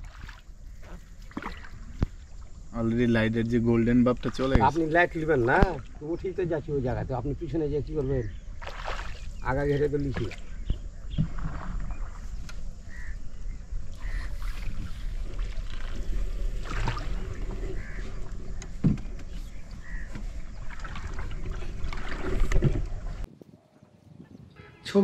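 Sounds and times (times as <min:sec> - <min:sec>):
paddle splashing and knocking: 0:00.0 - 0:02.5, 0:04.0 - 0:06.3, 0:07.9 - 0:13.1, 0:13.9 - 0:23.3
short bird calls: 0:12.8 - 0:13.2, 0:13.9 - 0:14.9.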